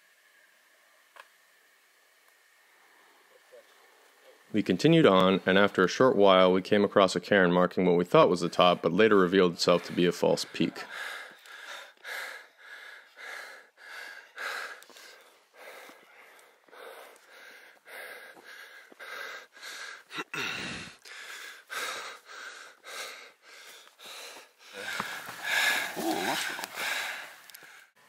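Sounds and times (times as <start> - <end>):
person panting heavily: 9.7 - 28.0.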